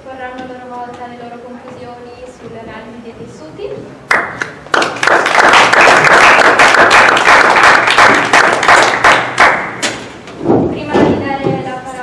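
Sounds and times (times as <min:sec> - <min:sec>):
audience applauding: 0:04.1 - 0:09.8.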